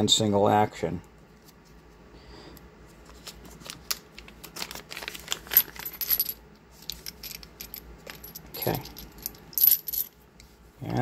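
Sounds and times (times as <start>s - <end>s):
plastic bag rustling: 3.1s - 6.2s
dummy rounds clinking: 5.3s - 10.2s.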